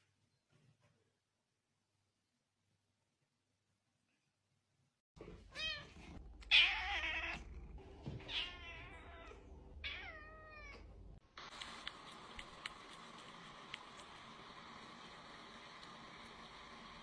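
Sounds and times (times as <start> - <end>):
cat meowing: 5.5 - 7.5, 8.2 - 10.9.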